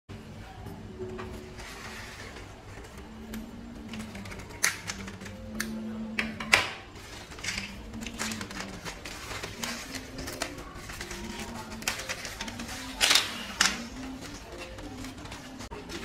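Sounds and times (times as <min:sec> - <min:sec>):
quiet background music: 0:00.1 - 0:16.0
wooden strips and tape rustling: 0:06.9 - 0:16.0.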